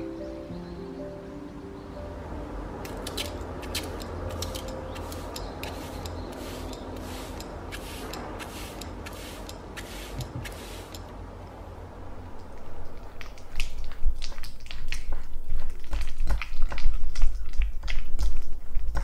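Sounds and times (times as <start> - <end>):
spray bottle squirts: 2.9 - 11.0.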